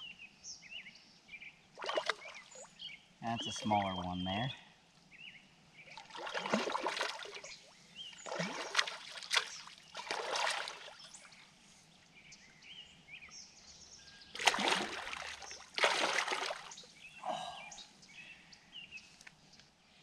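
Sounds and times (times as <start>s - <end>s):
fish splashing in water: 1.8s - 2.6s, 6.0s - 7.5s, 8.2s - 11.0s, 14.4s - 16.8s.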